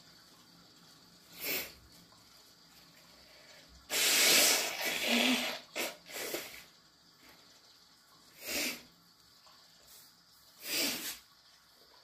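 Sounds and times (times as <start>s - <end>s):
person blowing nose: 3.9s - 6.6s, 10.6s - 11.2s.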